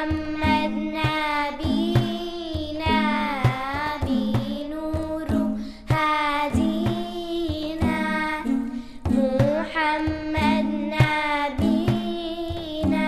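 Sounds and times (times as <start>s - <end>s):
backing track with drum beat: 0.0s - 13.0s
girls singing together: 0.0s - 13.0s.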